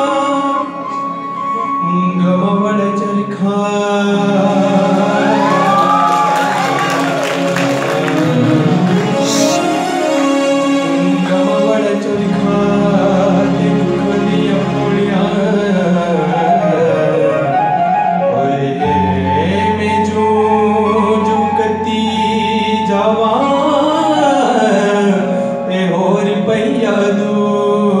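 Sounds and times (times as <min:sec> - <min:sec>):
man singing: 0:00.0 - 0:06.6, 0:07.4 - 0:28.0
electronic keyboard chords: 0:16.0 - 0:25.8.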